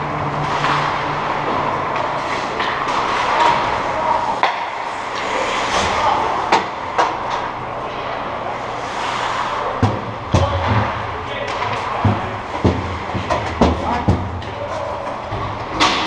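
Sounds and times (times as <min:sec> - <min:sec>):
stick hitting puck: 0:04.4 - 0:05.3, 0:09.8 - 0:14.7.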